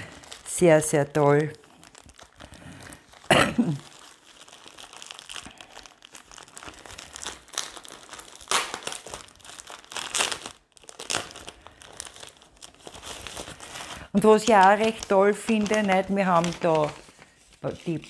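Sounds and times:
plastic bags crinkling: 0.0s - 18.0s.

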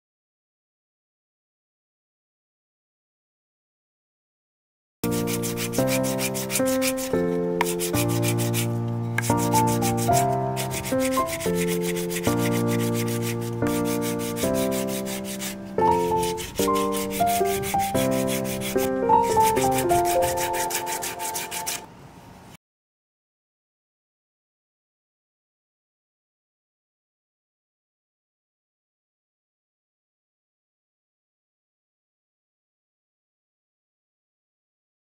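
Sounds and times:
sandpaper scratching on wood: 5.0s - 21.8s
held musical notes: 5.1s - 21.8s.

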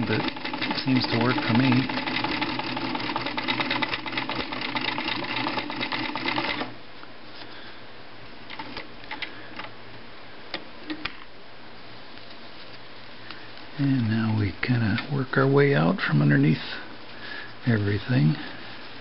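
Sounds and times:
sewing machine stitching fast: 0.0s - 6.8s.

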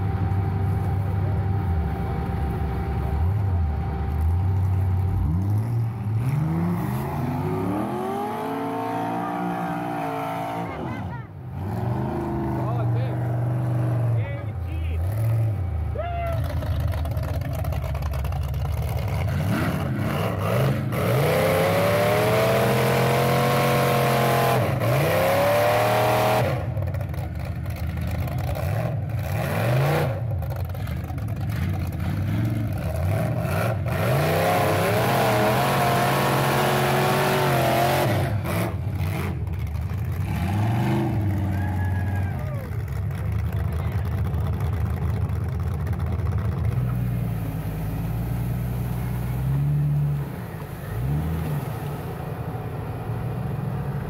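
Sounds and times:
truck engines revving hard: 0.0s - 54.0s.

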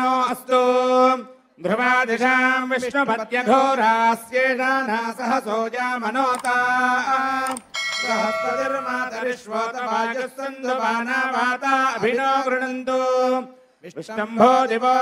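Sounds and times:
men chanting mantras: 0.0s - 15.0s
bell ringing: 7.6s - 9.3s.

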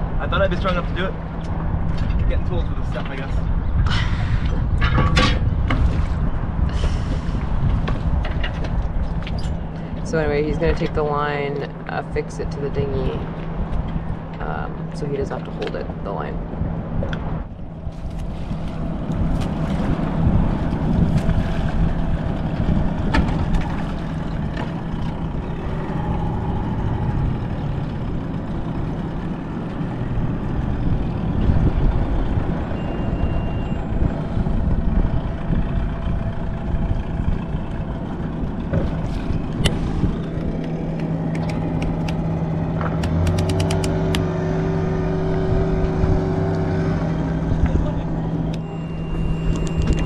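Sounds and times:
outboard motor running: 0.0s - 50.0s
wind rumble on microphone: 0.0s - 50.0s
quick clicks: 43.0s - 44.2s.

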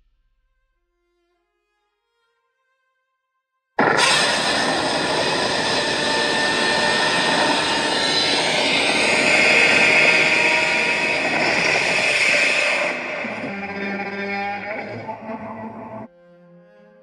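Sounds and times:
monster roar: 3.8s - 16.1s.

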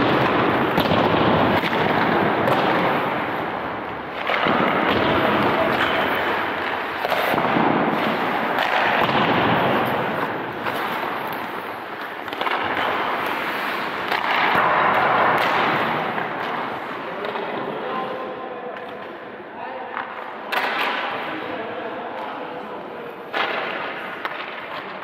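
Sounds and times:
hockey sticks and pucks clacking: 0.0s - 25.0s
skates scraping ice: 0.0s - 25.0s.

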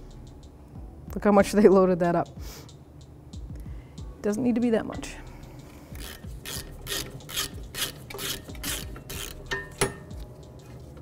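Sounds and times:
ratchet wrench clicking: 6.0s - 10.2s
sharp metal click: 6.1s - 10.1s.

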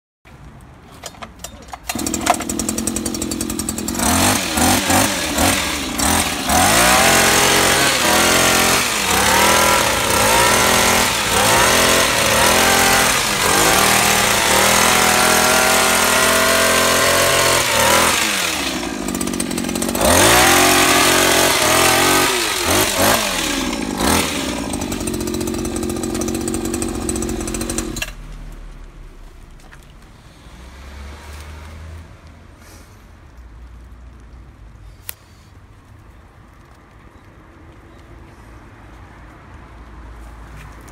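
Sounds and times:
hedge trimmer engine revving: 1.8s - 28.2s
blades cutting leafy vines: 1.9s - 28.2s.

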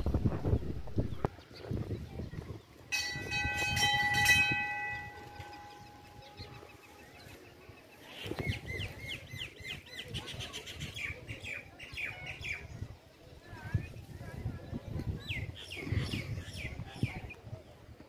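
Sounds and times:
metal temple bell ringing: 2.9s - 6.7s
bird chirping: 4.7s - 10.3s.

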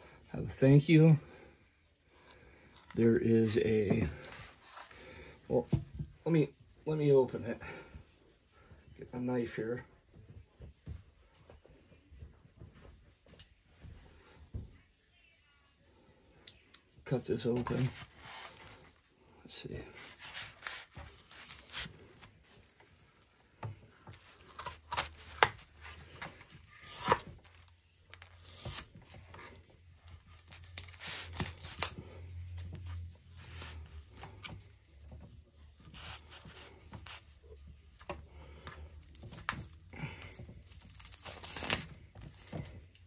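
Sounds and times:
paper rustling: 17.6s - 19.0s, 19.9s - 43.0s
knife cutting paper mailer: 20.0s - 29.6s, 30.2s - 32.1s.

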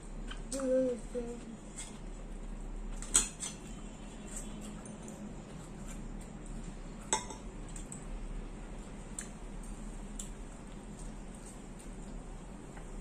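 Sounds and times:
forks clinking against plates: 3.0s - 5.2s.

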